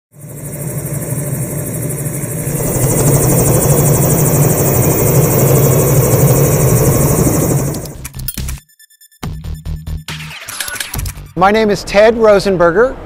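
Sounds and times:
helicopter rotor drone: 0:00.1 - 0:08.1.

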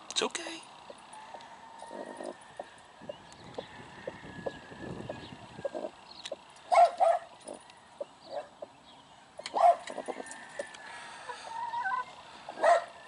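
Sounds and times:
dog barking: 0:06.7 - 0:07.3, 0:08.3 - 0:08.5, 0:09.5 - 0:09.9, 0:12.6 - 0:13.0.

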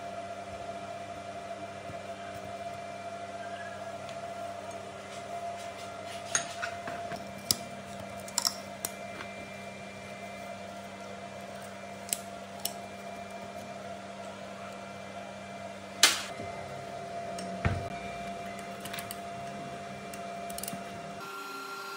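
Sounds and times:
faint hum: 0:00.0 - 0:21.9.

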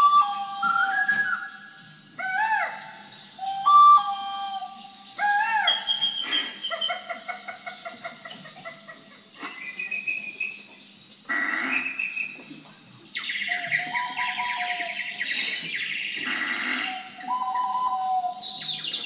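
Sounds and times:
whistle playing notes: 0:00.0 - 0:01.8, 0:03.4 - 0:06.4, 0:17.2 - 0:18.8.

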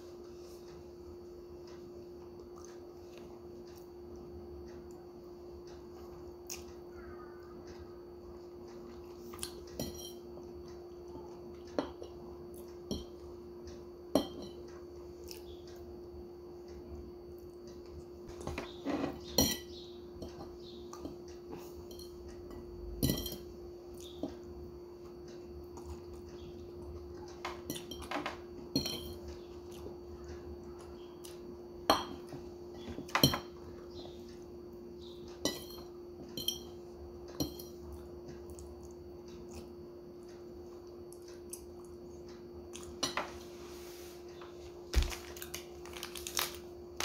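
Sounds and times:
steady hum: 0:00.0 - 0:47.0
fork clinking against a bowl: 0:09.4 - 0:10.2, 0:19.3 - 0:20.4.

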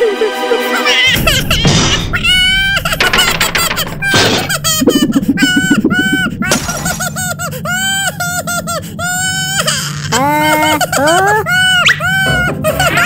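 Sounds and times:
high-pitched cartoon voices: 0:00.5 - 0:13.0
lower cartoon voice: 0:10.1 - 0:11.8.

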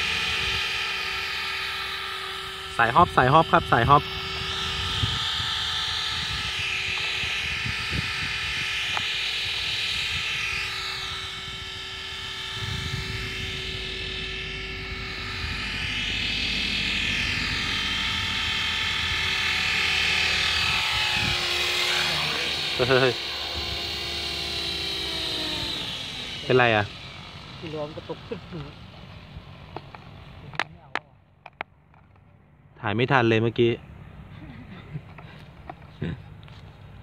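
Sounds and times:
rc helicopter rotor whine: 0:00.0 - 0:32.2, 0:33.1 - 0:37.0.

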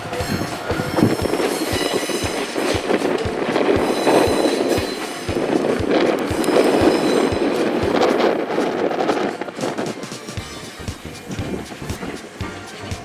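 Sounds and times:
faint high wheel squeal: 0:00.0 - 0:02.8, 0:03.8 - 0:05.3, 0:06.4 - 0:07.5
train wheels knocking over rail joints: 0:00.0 - 0:12.6
train rumble: 0:00.0 - 0:13.0.

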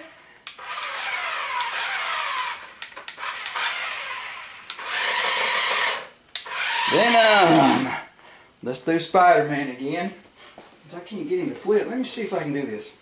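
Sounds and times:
toy car electric motors whining: 0:00.0 - 0:08.0.

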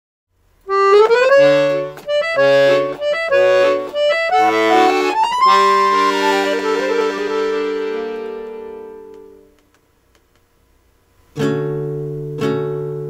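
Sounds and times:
accordion music: 0:00.7 - 0:09.6.

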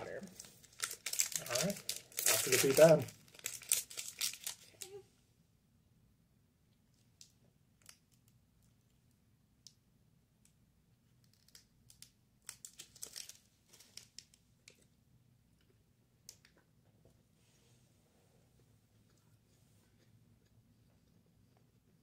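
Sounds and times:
plastic wrapper crinkling: 0:00.2 - 0:05.0, 0:11.2 - 0:14.8.

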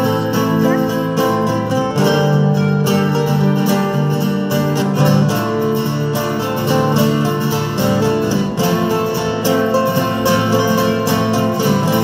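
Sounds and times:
live band with plucked strings: 0:00.0 - 0:12.0.

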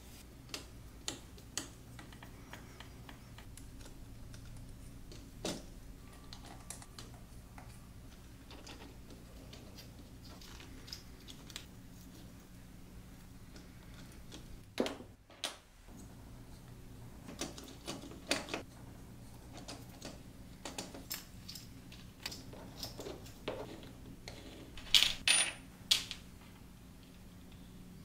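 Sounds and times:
plastic parts clicking and clattering: 0:08.4 - 0:11.7.

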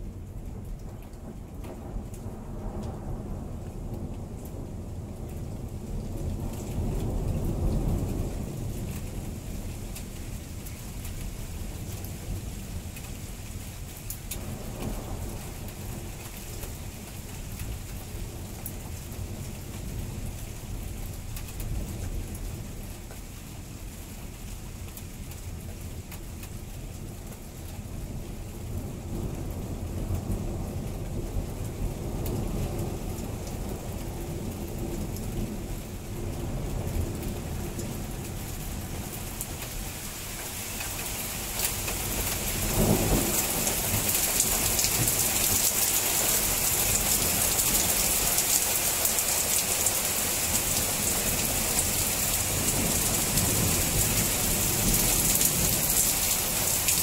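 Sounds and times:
heavy rain falling: 0:00.0 - 0:57.0
low rumbling thunder: 0:00.1 - 0:10.7, 0:41.8 - 0:49.2, 0:49.9 - 0:56.9.

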